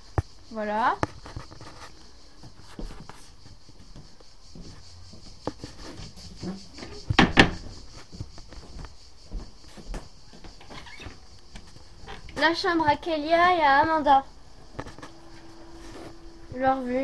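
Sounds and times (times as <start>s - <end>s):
door knocks clattering: 6.8s - 7.8s.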